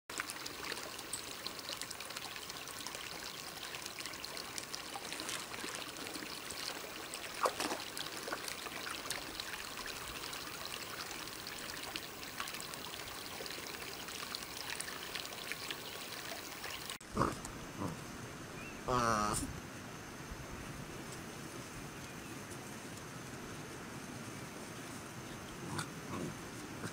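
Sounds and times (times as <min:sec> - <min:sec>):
small splashes: 0:00.1 - 0:17.0
stream water trickling: 0:00.1 - 0:17.1.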